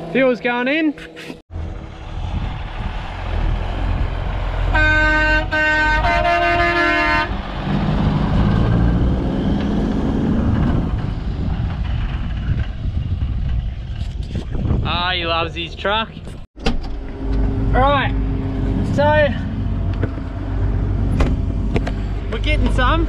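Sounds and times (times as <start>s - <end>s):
diesel engine rumbling: 1.5s - 23.0s
truck horn blasts: 4.6s - 7.5s.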